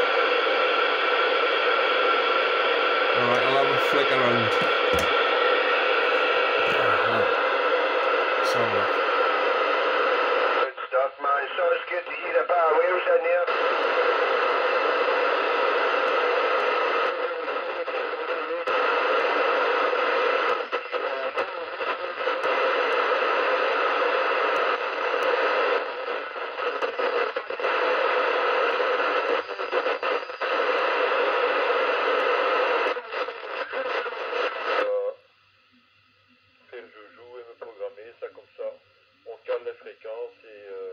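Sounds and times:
radio static hiss: 0.0 - 35.2, 36.6 - 40.9.

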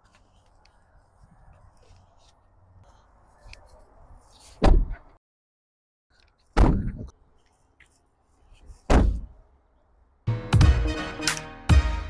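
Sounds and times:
car door thudding shut: 8.9 - 9.3.

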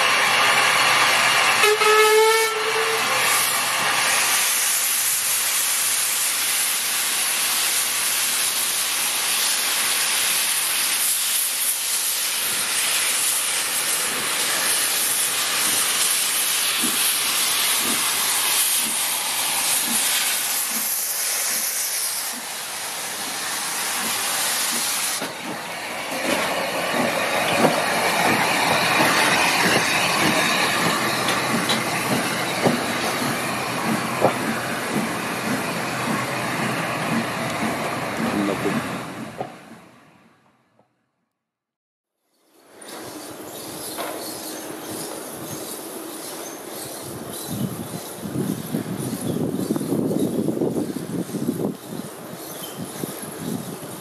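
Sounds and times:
loud hiss of steam: 0.0 - 39.8, 42.8 - 54.0
steam locomotive whistle: 1.5 - 3.5.

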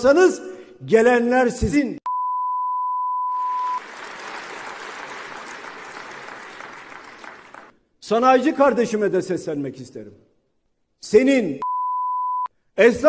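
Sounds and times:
high-pitched censor bleep: 2.1 - 3.8, 11.6 - 12.5
audience applause: 3.4 - 7.8.

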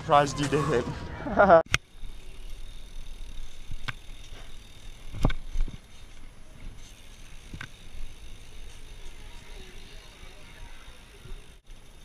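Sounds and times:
bike rolling on pavement: 0.0 - 12.0
bike knocking and rattling: 1.7 - 12.0.

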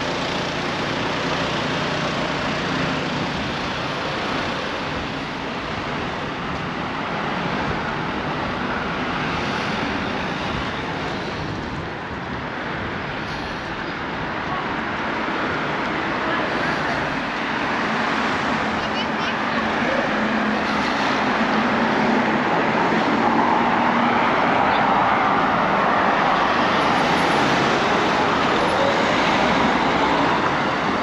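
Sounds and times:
cars driving past: 15.2 - 31.0.

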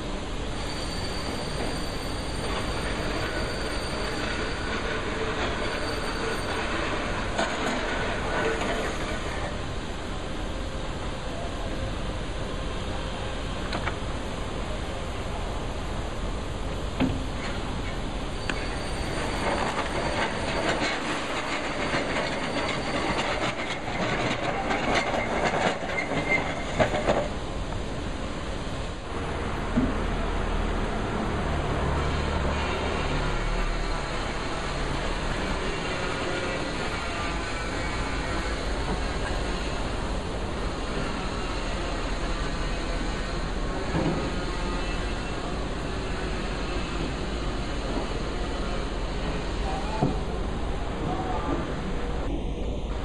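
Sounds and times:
construction background din: 0.0 - 53.0
mechanical rumble and hiss: 0.0 - 53.0
brief squeal: 0.6 - 7.0, 17.4 - 26.8, 44.1 - 47.3.

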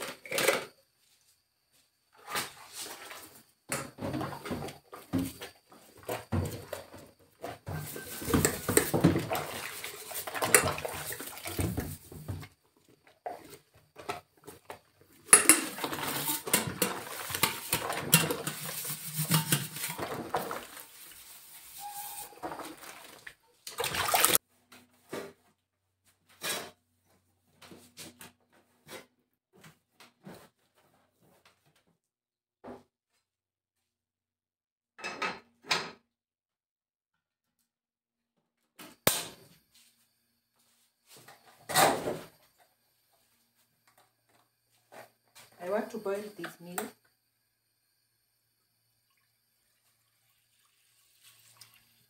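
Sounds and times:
scrubbing dishes: 3.9 - 12.5, 13.2 - 24.4
crockery and pots clinking: 15.3 - 20.7
water splashing: 21.8 - 24.4.

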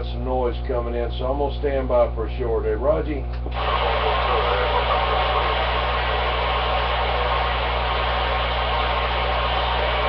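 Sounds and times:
low hum: 3.3 - 10.0
radio static hiss: 3.5 - 10.0.

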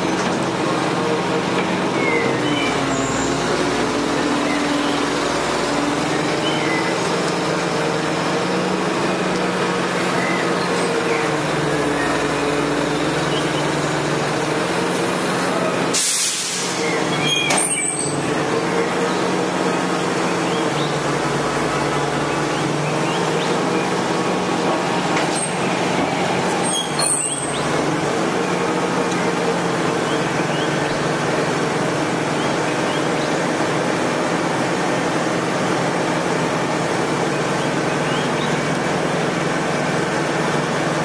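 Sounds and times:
garbage truck engine running: 0.0 - 41.0
air brake hiss: 15.9 - 16.8.

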